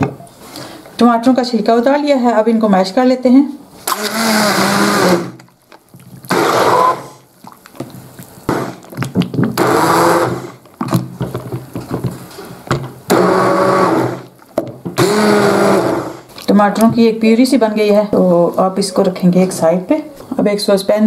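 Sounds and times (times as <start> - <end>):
stick blender pureeing: 3.8 - 16.9.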